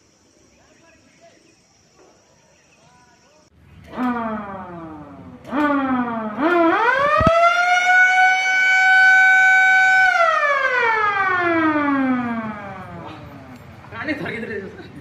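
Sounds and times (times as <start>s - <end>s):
motor-driven siren wailing: 3.9s - 13.3s.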